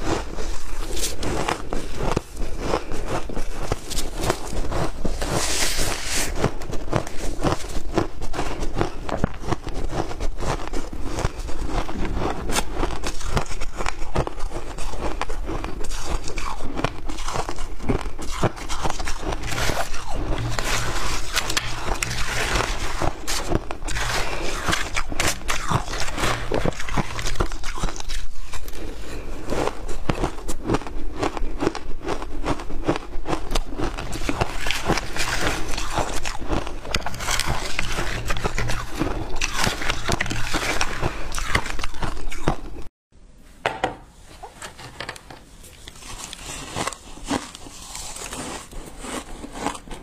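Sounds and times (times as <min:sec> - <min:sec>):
crunchy ice chewing: 0:00.0 - 0:42.9, 0:45.8 - 0:50.0
metal spoon scraping ice: 0:15.8 - 0:28.8, 0:34.0 - 0:42.4, 0:46.0 - 0:50.0.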